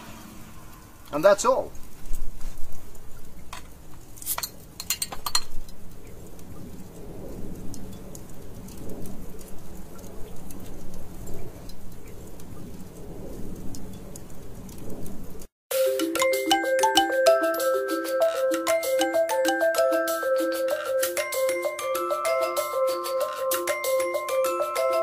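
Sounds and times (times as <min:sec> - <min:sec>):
metal clinking on glass bottle: 0:04.3 - 0:05.6.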